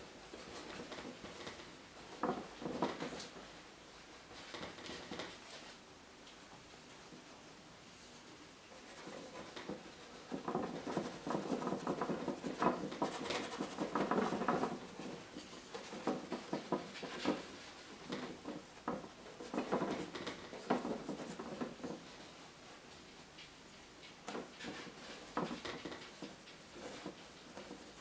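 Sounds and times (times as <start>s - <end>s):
paintbrush scrubbing on canvas: 8.8s - 18.4s.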